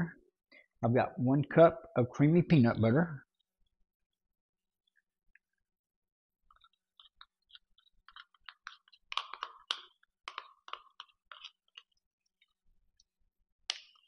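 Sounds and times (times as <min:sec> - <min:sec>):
knife scraping peanut butter: 0:06.5 - 0:12.6.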